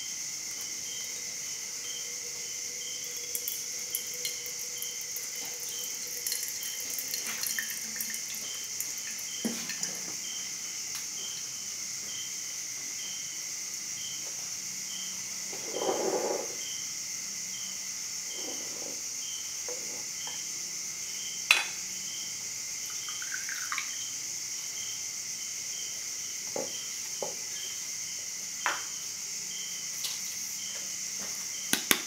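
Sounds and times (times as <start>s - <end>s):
crickets chirping: 0.0s - 32.0s
water dripping: 3.0s - 10.2s, 22.8s - 24.1s
water pouring from kettle: 3.2s - 10.1s, 22.9s - 23.9s.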